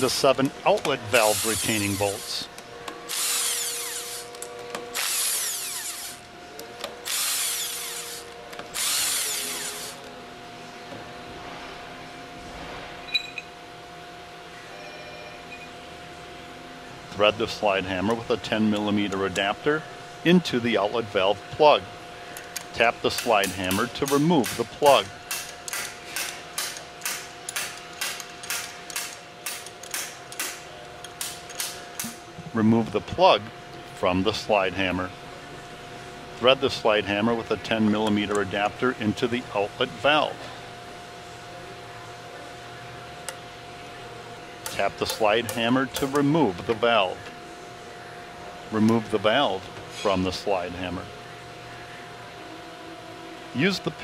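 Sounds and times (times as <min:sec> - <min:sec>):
impact wrench loosening bolts: 0:00.4 - 0:02.4, 0:03.1 - 0:06.2, 0:22.4 - 0:32.2.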